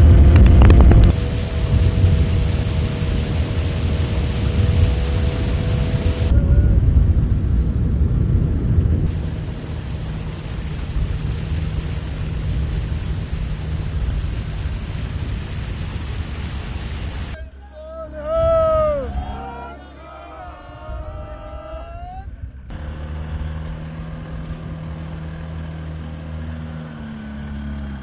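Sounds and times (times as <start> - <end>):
wind rumbling on microphone: 0.0 - 17.5, 20.5 - 22.7.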